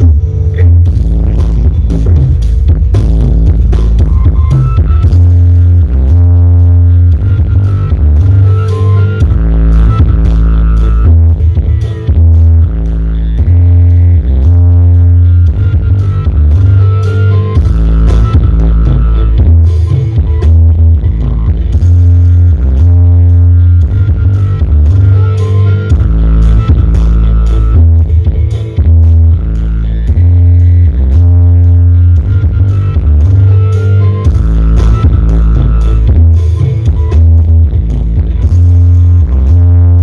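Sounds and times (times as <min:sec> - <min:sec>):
deep bass notes: 0:00.0 - 0:40.0
loud music over sound system: 0:00.0 - 0:40.0.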